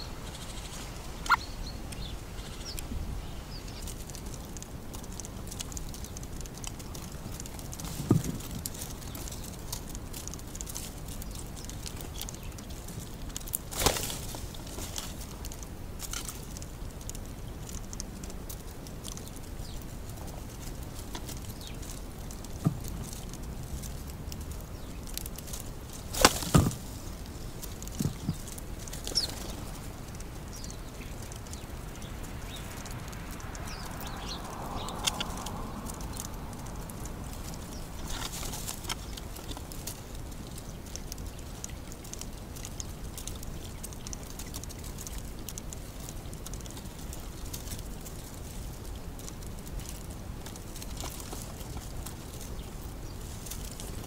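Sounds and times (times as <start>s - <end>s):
faint bird chirps: 0.0s - 3.9s
steady outdoor hiss: 0.0s - 54.0s
pigeon wings flapping: 13.7s - 14.4s.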